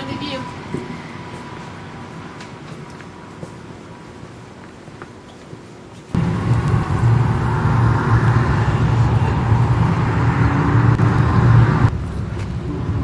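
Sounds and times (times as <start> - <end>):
low rumble: 6.2 - 13.0.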